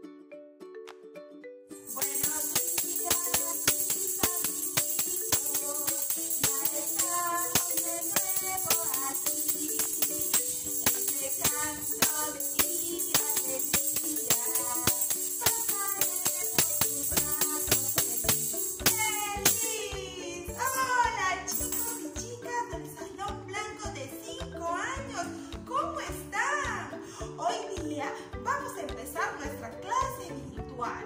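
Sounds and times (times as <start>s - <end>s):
tambourine beat: 1.8s - 22.9s
woman singing: 1.9s - 31.0s.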